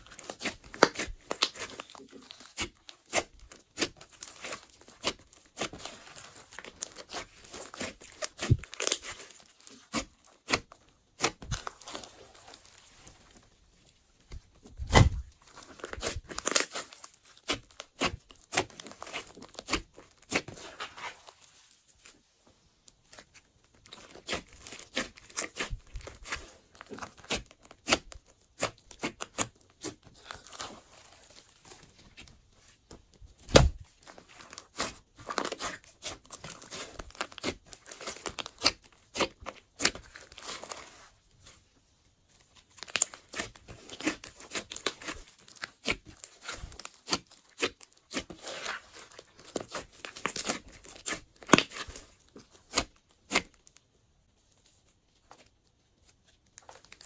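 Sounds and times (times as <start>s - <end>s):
slime squelching and crackling: 0.0s - 22.4s, 23.0s - 53.9s.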